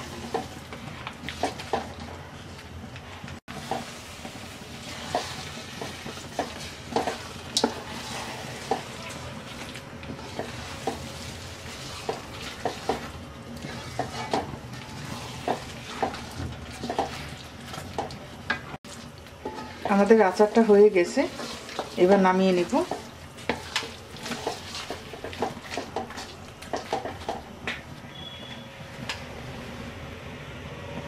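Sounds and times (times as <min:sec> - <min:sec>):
pickle sizzling: 0:00.0 - 0:28.5
wooden spatula scraping a pan: 0:03.1 - 0:18.1, 0:19.4 - 0:27.4.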